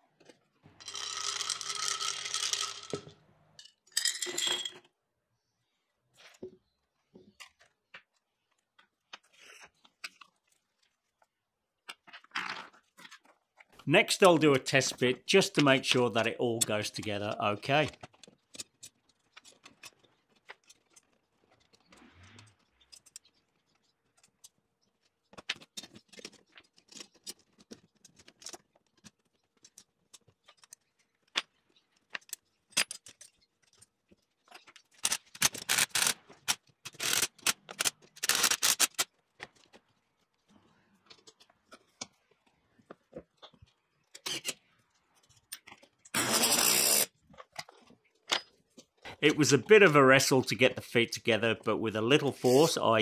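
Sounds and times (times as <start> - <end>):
metal parts clinking and rattling: 0.8 - 4.9, 25.3 - 39.8.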